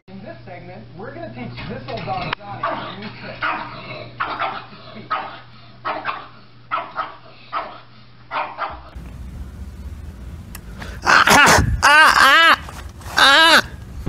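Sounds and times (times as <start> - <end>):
dog barking: 2.6 - 8.9
low steady rumble: 9.0 - 11.8, 13.7 - 14.0.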